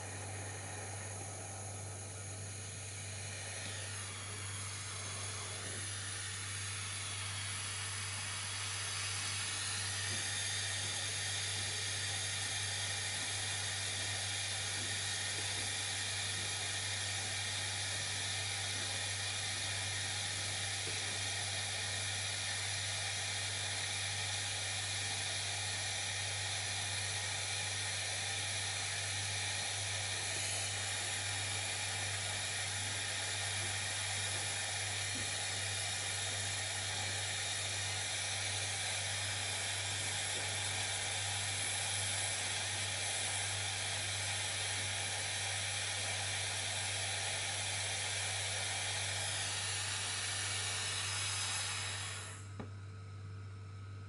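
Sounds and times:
low steady hum: 0.0s - 26.5s
gas soldering iron hissing: 0.0s - 52.7s.

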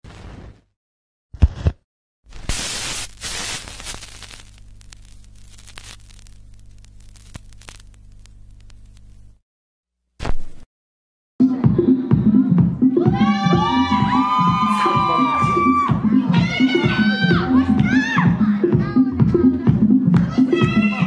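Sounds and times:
vinyl hiss and crackle: 2.3s - 9.4s
low turntable hum: 2.6s - 9.4s.

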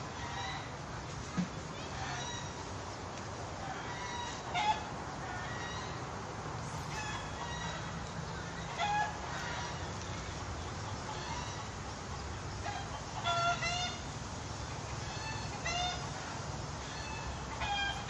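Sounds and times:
chickens clucking: 6.8s - 14.1s, 14.7s - 18.0s.

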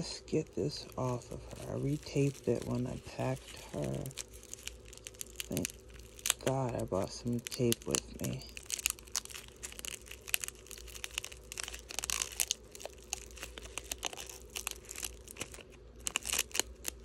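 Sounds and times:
bubble wrap crinkling: 0.0s - 17.0s
tape peeling off plastic: 0.7s - 17.0s.

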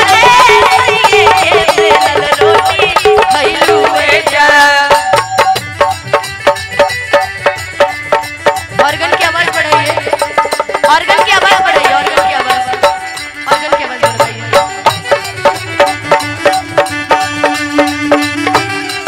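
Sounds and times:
fast drum beat: 0.0s - 19.0s
keyboard melody: 11.2s - 19.0s.

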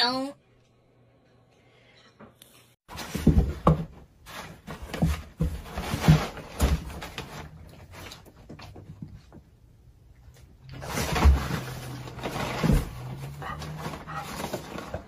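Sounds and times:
rustling and scuffling: 2.9s - 9.6s, 10.3s - 15.0s.

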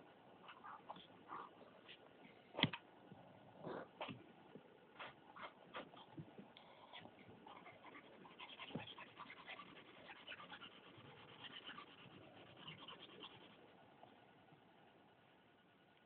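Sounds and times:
pencil scratching on paper: 6.9s - 13.7s.

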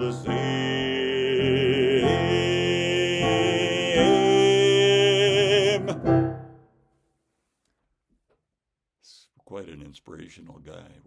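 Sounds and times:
man singing with vibrato: 0.0s - 6.4s
sustained backing chords: 0.0s - 6.6s.

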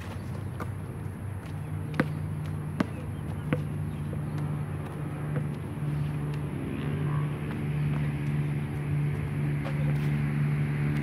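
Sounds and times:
low mechanical hum: 0.0s - 11.0s
basketball bouncing on hard court: 1.4s - 6.5s.

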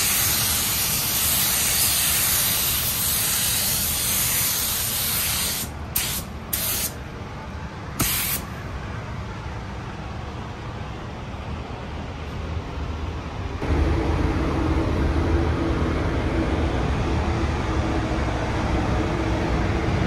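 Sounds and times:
paint spray gun hissing: 0.0s - 7.0s, 8.0s - 8.4s
low background rumble: 0.0s - 20.0s.

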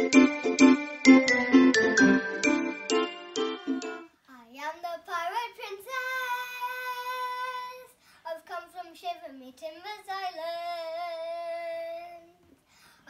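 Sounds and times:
girl singing: 3.3s - 12.5s.

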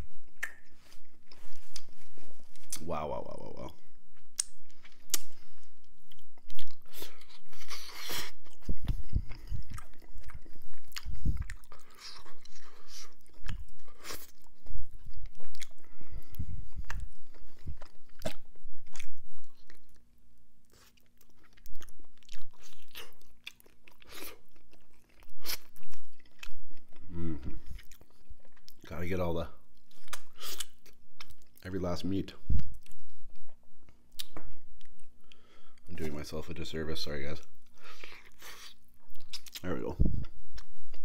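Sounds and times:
lip smacks: 0.4s - 0.7s, 4.4s - 5.4s
wet chewing: 4.2s - 20.1s.

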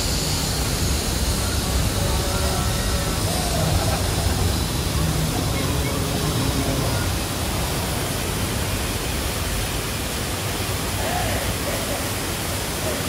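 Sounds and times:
water rushing down rocks: 0.0s - 13.0s.

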